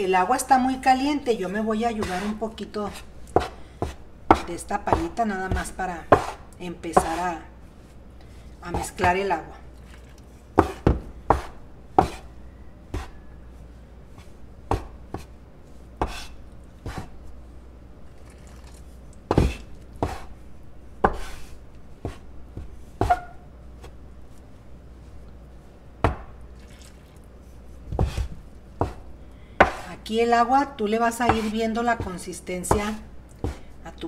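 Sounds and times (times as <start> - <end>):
spatula scraping on countertop: 1.8 - 4.5, 5.5 - 8.0, 15.1 - 17.2, 19.4 - 20.4, 21.0 - 23.9, 27.4 - 29.0, 31.0 - 33.7.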